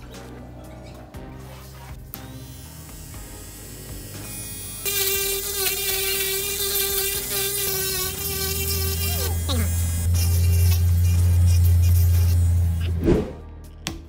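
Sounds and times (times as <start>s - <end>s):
grinder bit grinding metal: 2.3s - 12.9s
rotary grinder whining: 2.3s - 12.9s.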